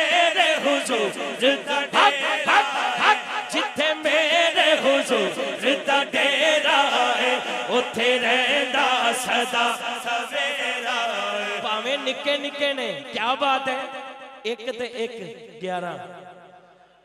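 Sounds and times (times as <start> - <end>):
men chanting together: 0.0 - 12.6.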